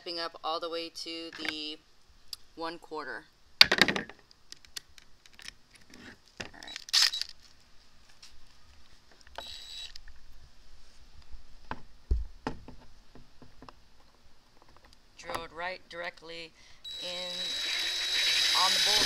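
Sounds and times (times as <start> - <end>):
drill bits clicking and rattling: 6.7 - 7.4, 9.3 - 10.0, 16.8 - 19.0
drill whirring into plastic: 9.4 - 10.0, 16.8 - 19.0.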